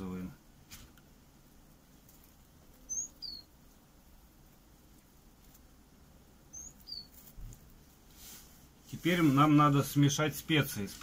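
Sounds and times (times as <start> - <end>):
small bird chirping: 1.9 - 7.9.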